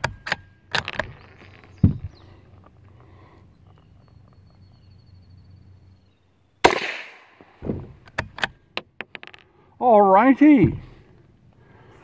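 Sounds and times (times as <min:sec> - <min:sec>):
rifle shot: 0:06.6 - 0:07.8
rifle bolt thud and clicks: 0:07.6 - 0:09.4.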